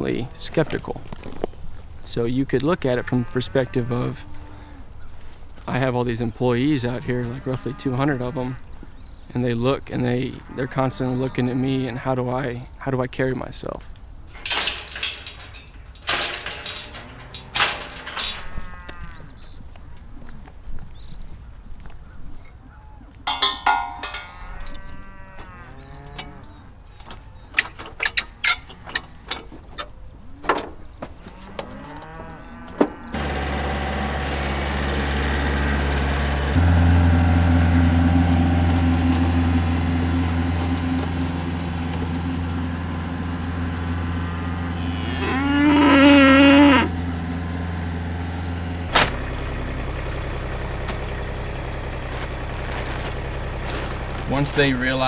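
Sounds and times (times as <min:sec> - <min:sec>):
cattle mooing: 0:03.1 - 0:05.0, 0:07.0 - 0:08.7, 0:10.3 - 0:12.0, 0:14.4 - 0:19.4, 0:22.8 - 0:27.5, 0:31.3 - 0:33.2, 0:36.5 - 0:47.5
clicks and knocks: 0:14.3 - 0:18.6, 0:23.3 - 0:24.7
steady low hum: 0:35.4 - 0:45.2.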